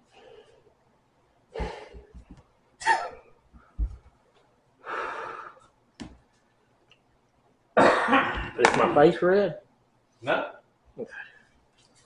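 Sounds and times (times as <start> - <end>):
man breathing hard through hands: 1.5 - 2.2.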